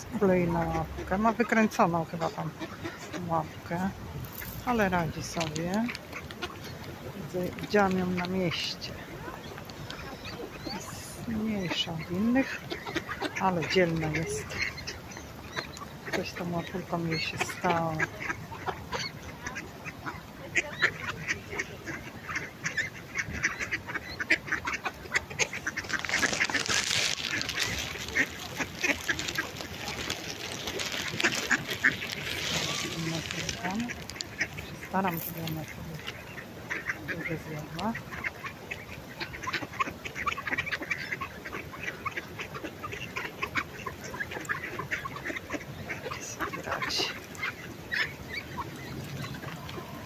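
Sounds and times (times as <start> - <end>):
ducks quacking: 0.0 - 50.0
beaks tapping on gravel: 4.2 - 6.5, 25.6 - 36.0.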